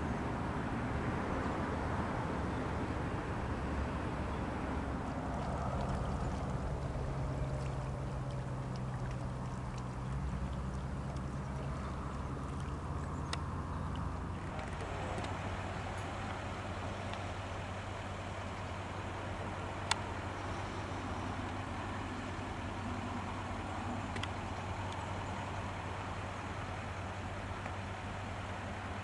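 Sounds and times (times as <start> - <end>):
low engine drone: 0.0 - 29.0
outdoor noise: 0.0 - 29.0
faint clicks: 7.5 - 15.4, 19.8 - 20.1, 24.1 - 25.1.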